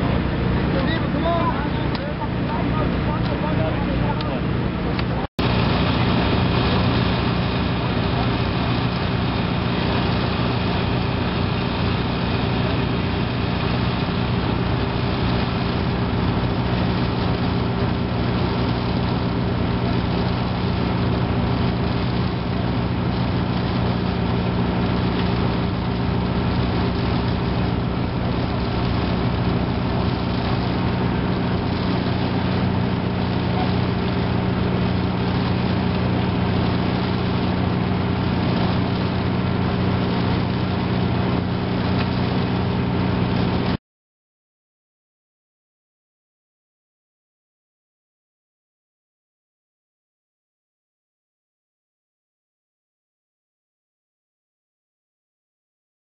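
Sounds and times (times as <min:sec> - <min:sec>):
hydraulic power unit engine running: 0:00.0 - 0:43.8.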